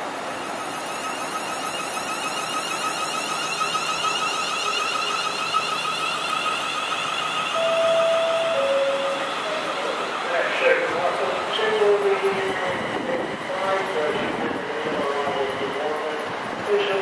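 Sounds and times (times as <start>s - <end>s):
electric train whine: 0.0s - 17.0s
two-tone train horn: 7.5s - 9.9s.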